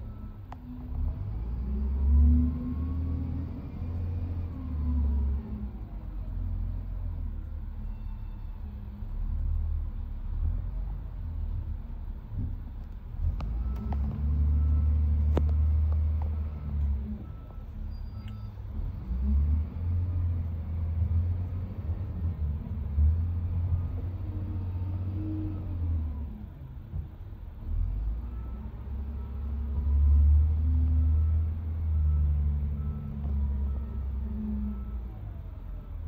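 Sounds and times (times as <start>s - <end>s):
diesel loader engine revving: 0.0s - 7.8s, 8.8s - 36.0s
faint beeps: 13.6s - 18.7s.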